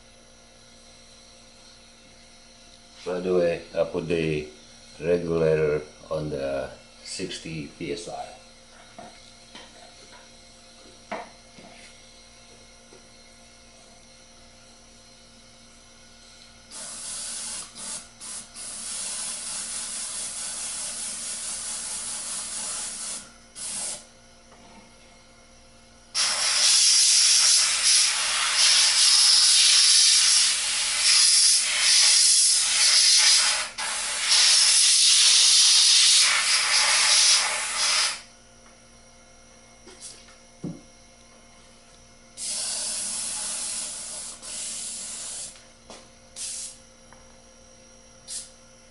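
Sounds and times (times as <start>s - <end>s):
airbrush air hissing: 16.7s - 24.1s, 26.2s - 38.3s, 42.4s - 45.6s, 46.4s - 46.8s, 48.2s - 48.6s.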